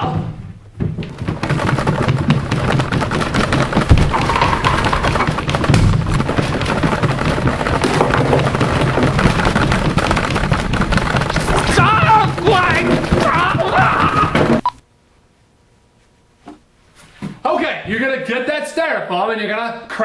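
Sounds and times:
thuds: 0:00.0 - 0:14.7
rattling: 0:00.8 - 0:14.6.

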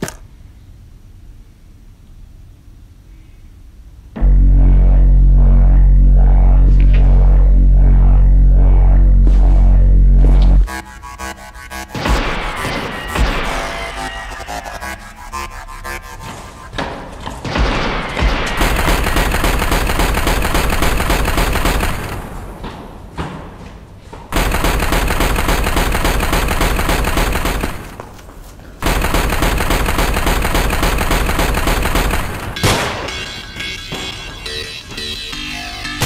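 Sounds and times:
automatic rifle fire: 0:18.5 - 0:22.4, 0:24.4 - 0:28.0, 0:28.8 - 0:33.1.

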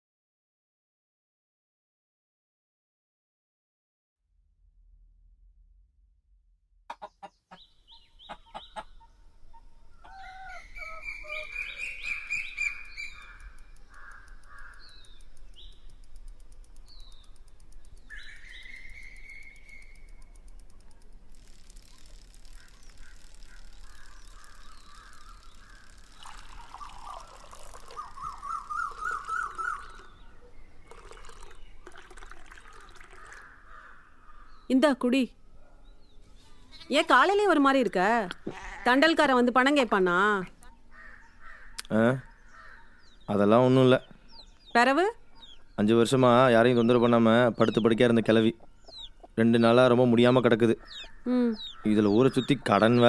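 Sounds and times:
quick repeated bird calls: 0:06.9 - 0:34.7, 0:40.6 - 0:53.0
birds calling and chirping: 0:06.9 - 0:53.0
sharp clicks: 0:12.1 - 0:26.2.

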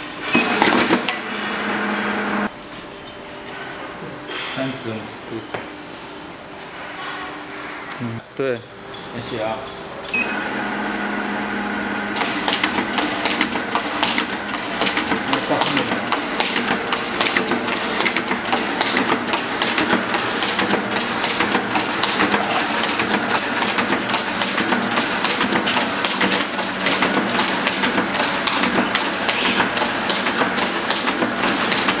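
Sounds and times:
paper folding machine clattering: 0:00.4 - 0:01.5, 0:12.1 - 0:32.0.

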